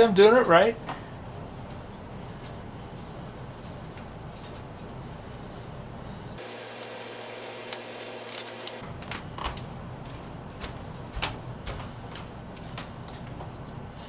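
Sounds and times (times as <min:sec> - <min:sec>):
steady low hum: 0:00.6 - 0:14.0
wooden stick clicking and scraping: 0:12.5 - 0:14.0.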